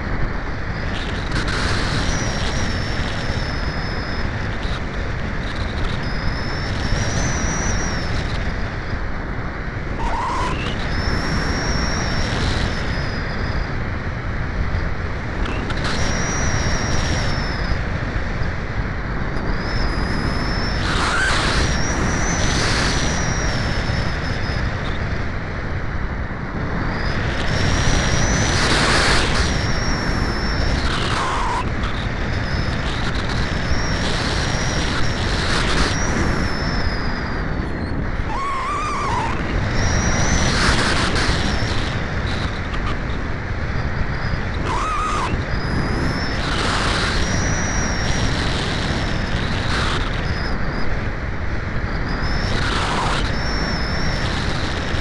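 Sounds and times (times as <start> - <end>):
faint high whine: 0.0 - 55.0
wind rushing over microphone: 0.0 - 55.0.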